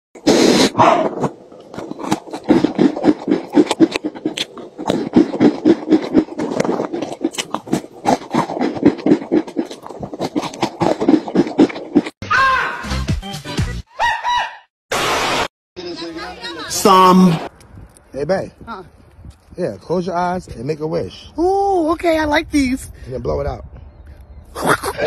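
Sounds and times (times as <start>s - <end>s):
man chewing crunchy cookies: 0.2s - 12.2s.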